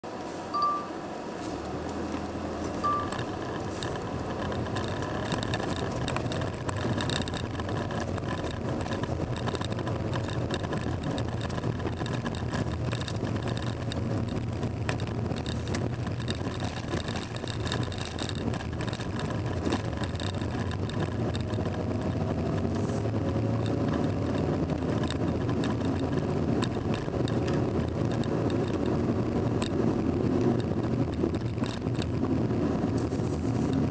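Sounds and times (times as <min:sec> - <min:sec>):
car engine hum: 0:00.0 - 0:33.9
tyre and road noise: 0:00.0 - 0:33.9
short high beeps: 0:00.5 - 0:01.0, 0:02.8 - 0:03.2.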